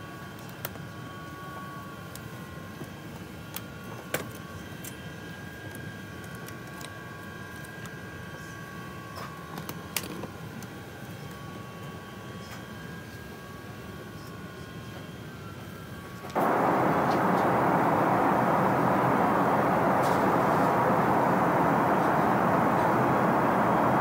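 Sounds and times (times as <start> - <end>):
airliner cabin hum: 16.4 - 24.0.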